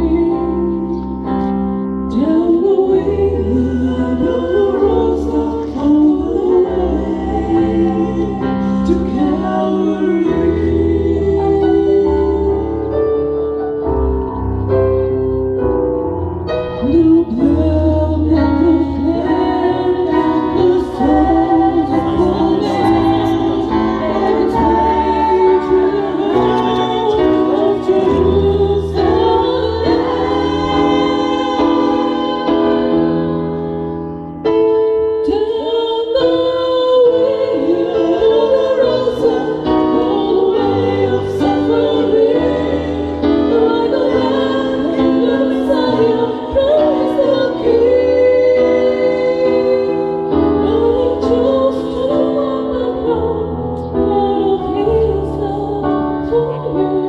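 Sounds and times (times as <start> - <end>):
women singing together: 0.0 - 1.2, 2.1 - 13.2, 16.8 - 33.6, 35.2 - 57.0
electronic keyboard bass chords: 6.5 - 34.7.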